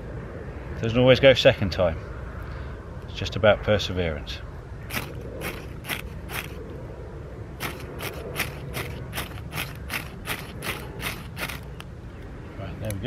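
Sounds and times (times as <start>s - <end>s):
striker scraping fire steel: 4.9s - 6.6s, 7.6s - 11.7s.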